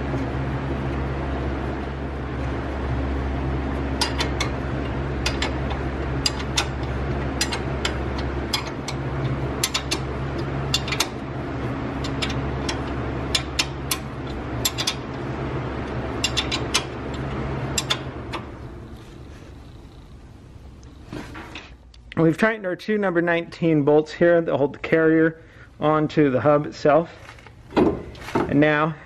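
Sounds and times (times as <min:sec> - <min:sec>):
steady low hum: 0:00.0 - 0:29.0
ratchet wrench clicking: 0:05.2 - 0:09.0, 0:09.6 - 0:10.1, 0:10.7 - 0:11.2, 0:12.0 - 0:15.0, 0:16.2 - 0:16.9.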